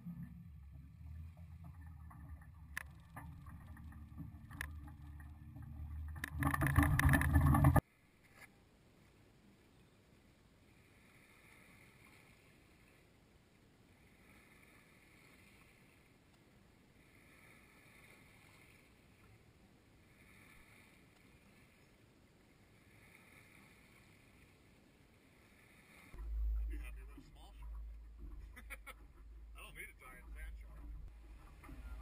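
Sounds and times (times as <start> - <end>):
faint outdoor hiss: 7.8 - 32.0.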